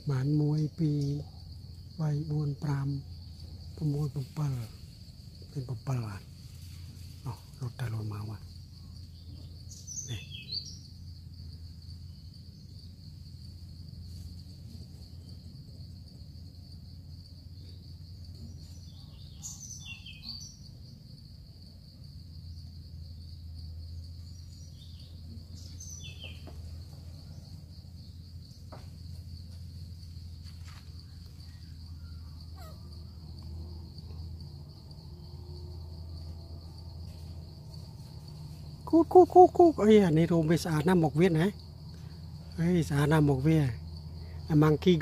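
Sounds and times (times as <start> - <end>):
high-pitched insect drone: 0.0 - 45.0
bird chirps: 8.6 - 11.1, 18.4 - 20.8, 24.2 - 28.6.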